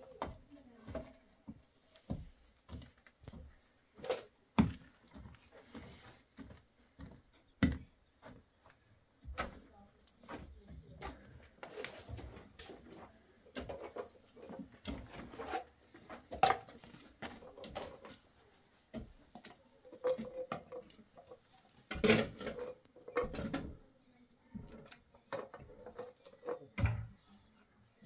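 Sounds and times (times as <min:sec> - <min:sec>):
pipe fittings clicking and knocking: 0:13.5 - 0:23.8, 0:24.5 - 0:27.1.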